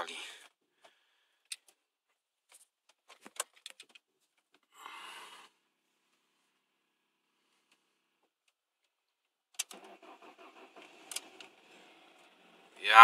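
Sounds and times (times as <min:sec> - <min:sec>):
short ignition buzz: 0:09.7 - 0:12.7.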